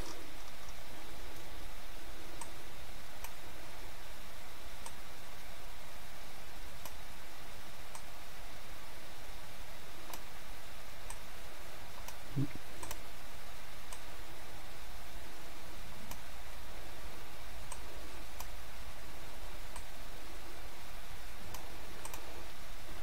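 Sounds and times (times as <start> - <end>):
computer mouse clicks: 10.1 - 10.3, 12.0 - 13.0, 17.7 - 18.6, 21.5 - 22.3.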